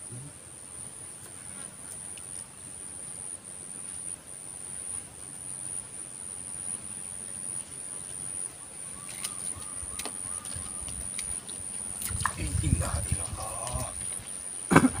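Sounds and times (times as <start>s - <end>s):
faint bird calls: 8.5s - 11.7s
low wind rumble: 11.9s - 15.0s.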